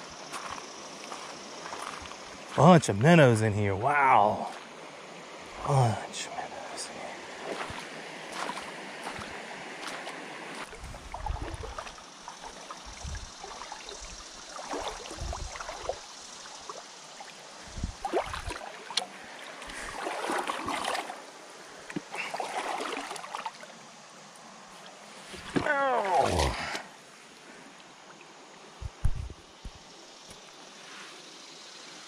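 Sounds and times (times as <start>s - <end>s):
water sloshing and splashing: 0.3s - 2.5s, 7.3s - 23.9s, 24.6s - 26.8s
dull low thumps: 28.8s - 29.4s.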